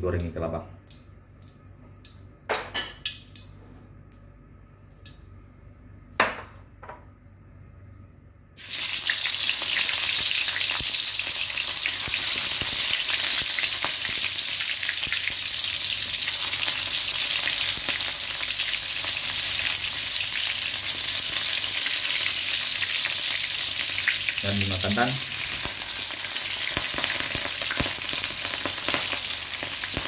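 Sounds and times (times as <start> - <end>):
stalks sizzling in hot fat: 8.6 - 30.0.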